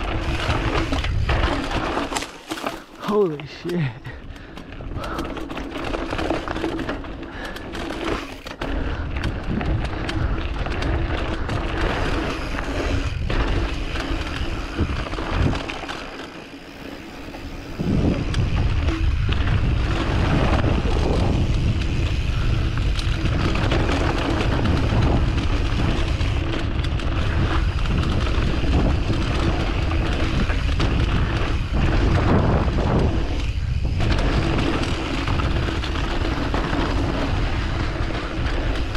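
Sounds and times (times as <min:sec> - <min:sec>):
bike frame and chain rattling: 0:00.0 - 0:38.9
bike tyres rolling over dirt: 0:00.0 - 0:38.9
wind on microphone: 0:17.6 - 0:38.9.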